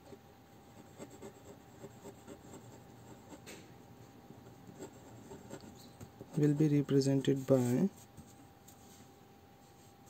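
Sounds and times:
pen scratching on paper: 0.8 - 3.4, 4.7 - 6.7.

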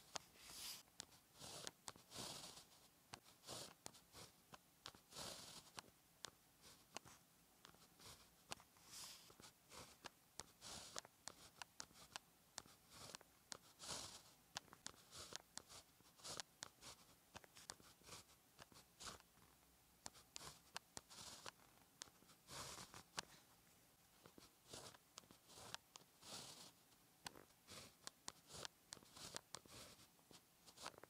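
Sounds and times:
pen scratching on paper: 0.0 - 23.4, 24.2 - 31.0
sharp little pen ticks: 1.0 - 7.0, 9.7 - 19.3, 20.0 - 23.2, 24.2 - 30.0.

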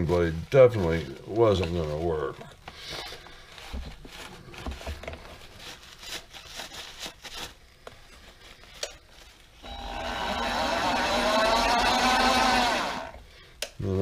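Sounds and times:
lathe motor spinning up: 9.6 - 13.2.

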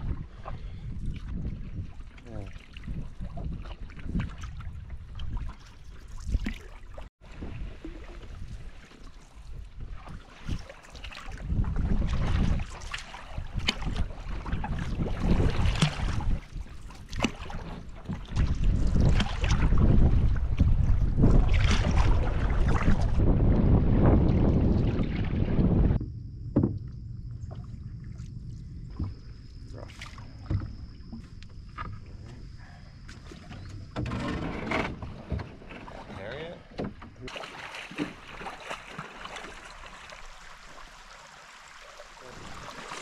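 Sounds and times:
water splashing: 0.0 - 26.0, 26.6 - 34.0, 35.0 - 43.0
wind rumbling on microphone: 0.0 - 37.3
paddle knocking against wooden canoe: 25.9 - 27.6, 28.9 - 32.5, 33.1 - 39.6.

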